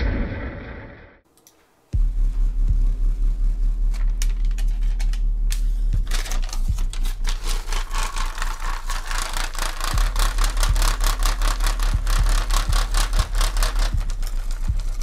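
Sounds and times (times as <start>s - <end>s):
subwoofer deep steady tone: 2.0s - 6.9s
paper strip fluttering and rattling: 3.9s - 5.3s, 6.0s - 15.0s.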